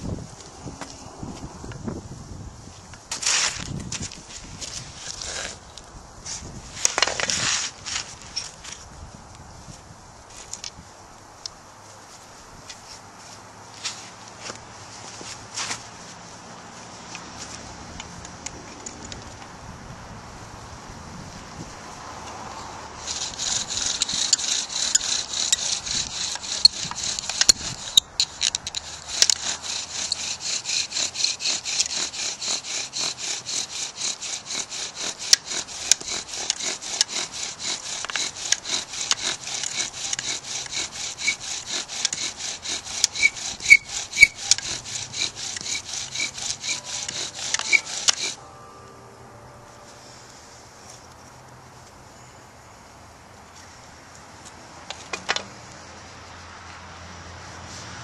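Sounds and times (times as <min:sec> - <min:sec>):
bow drill scraping rub: 0:23.0 - 0:48.4.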